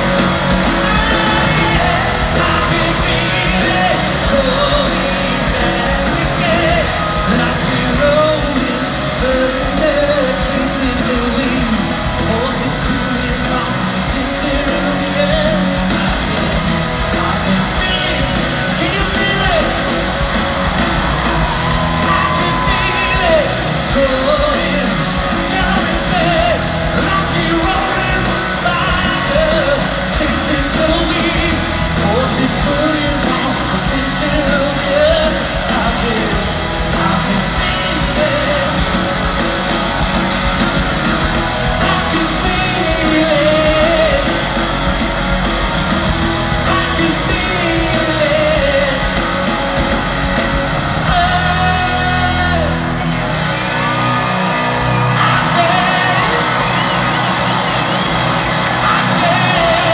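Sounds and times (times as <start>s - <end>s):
person singing lead vocal: 0.0s - 45.0s, 46.4s - 59.9s
crowd yelling: 0.0s - 59.9s
electric guitars: 0.0s - 59.9s
rock band playing live: 0.0s - 59.9s.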